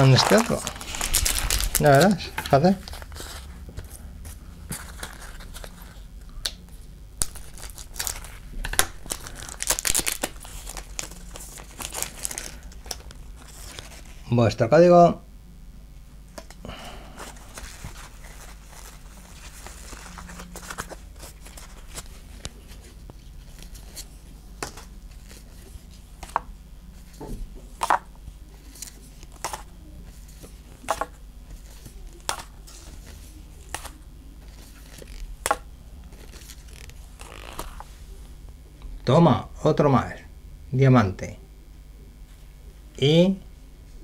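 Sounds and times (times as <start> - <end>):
trading cards rustling: 0.0 - 6.1, 7.2 - 14.2, 16.6 - 26.4, 27.8 - 37.9
low steady hum: 0.0 - 44.0.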